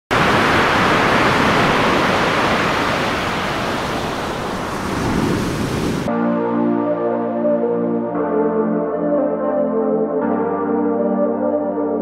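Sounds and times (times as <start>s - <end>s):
ocean surf rushing: 0.1s - 6.2s.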